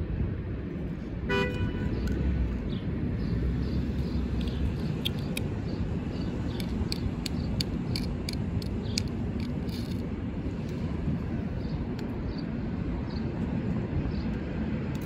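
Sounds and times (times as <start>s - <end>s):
distant traffic: 0.0s - 15.0s
sharp high ticks: 3.8s - 10.8s.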